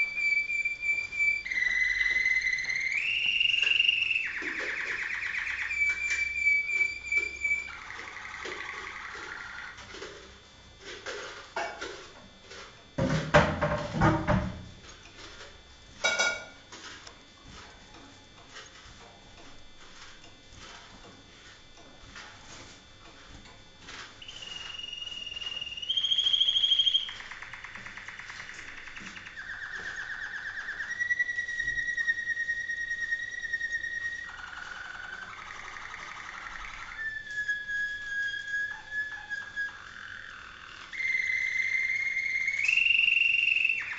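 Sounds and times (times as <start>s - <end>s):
canary singing: 0.0s - 10.0s, 23.9s - 43.9s.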